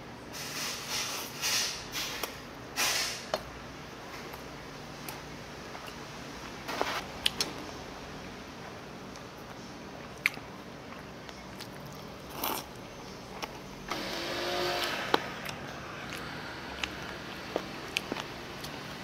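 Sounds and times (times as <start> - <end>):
chewing: 9.1 - 13.6, 14.8 - 19.0.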